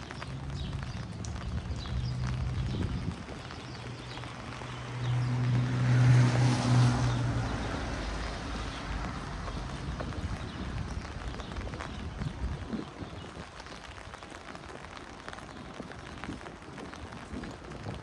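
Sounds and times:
vehicle engine hum: 0.0s - 12.3s
tyre hiss on wet street: 0.0s - 18.0s.

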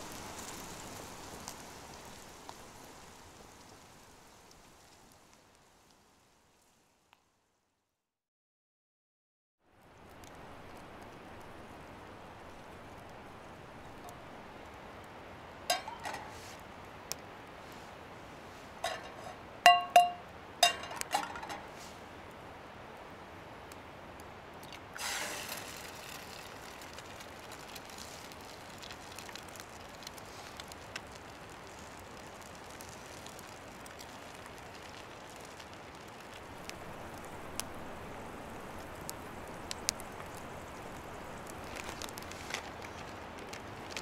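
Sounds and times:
hard objects clinking: 15.7s - 16.4s, 18.8s - 21.7s.

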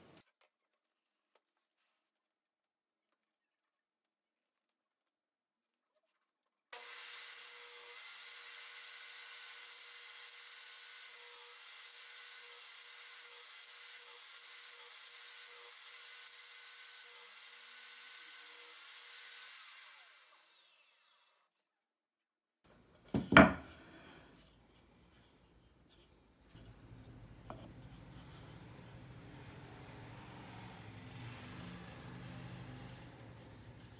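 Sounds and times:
table saw whining: 6.8s - 21.4s
loud wooden knock: 23.1s - 23.7s.

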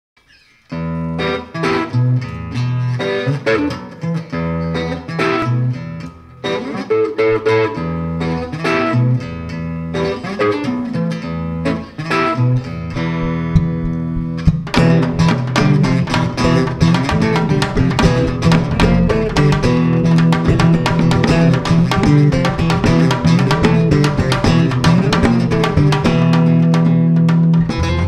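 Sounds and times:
acoustic guitar picking: 0.3s - 28.0s
electric bass notes: 11.4s - 28.0s.

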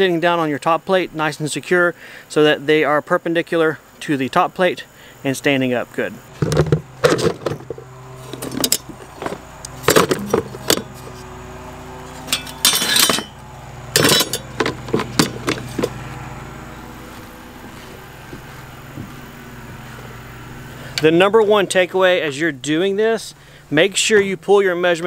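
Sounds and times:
steady low hum: 3.8s - 25.0s
metal brackets clinking in tubs: 6.4s - 11.3s, 12.1s - 15.9s.

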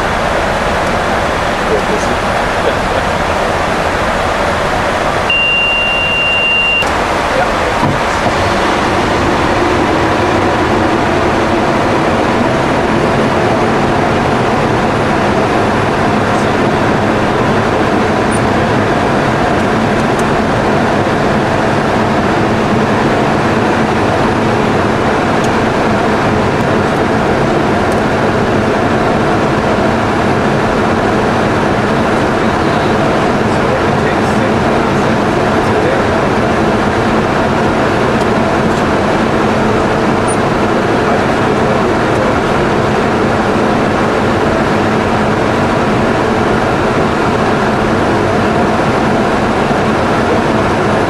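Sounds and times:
airflow rushing in cockpit: 0.0s - 51.0s
jet engine hum: 0.0s - 51.0s
steady high beep: 5.3s - 6.9s.

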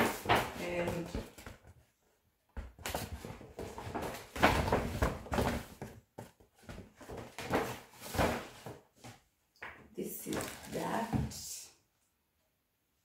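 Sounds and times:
paper bag rustling and crinkling: 0.0s - 1.4s, 10.2s - 11.1s.

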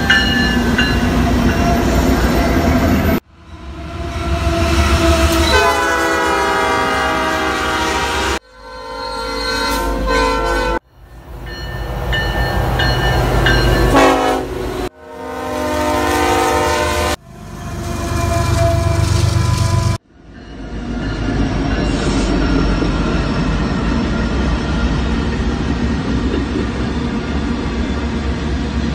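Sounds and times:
locomotive air horns: 3.4s - 10.8s, 13.8s - 20.0s.

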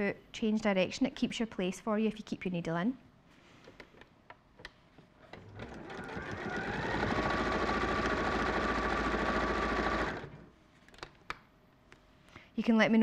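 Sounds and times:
sewing machine motor running: 5.4s - 10.5s.

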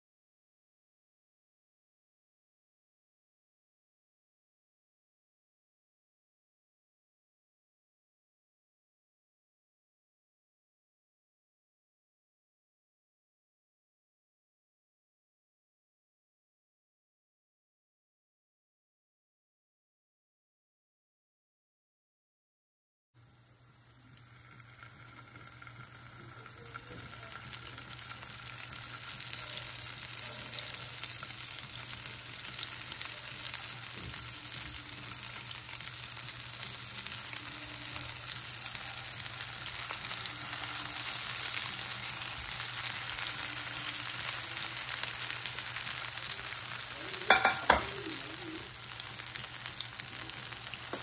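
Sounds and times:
food sizzling in oil: 23.2s - 51.0s.

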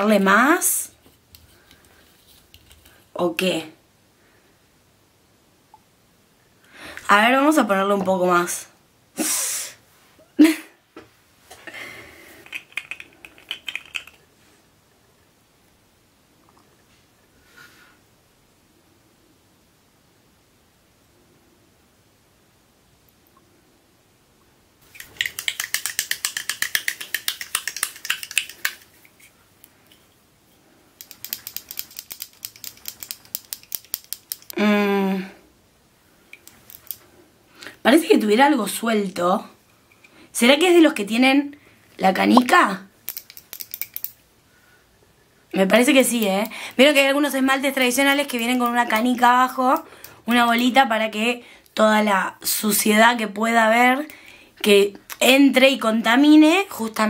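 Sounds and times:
glass bottle rattling when shaken: 12.4s - 14.2s, 24.8s - 29.2s, 31.0s - 34.5s.

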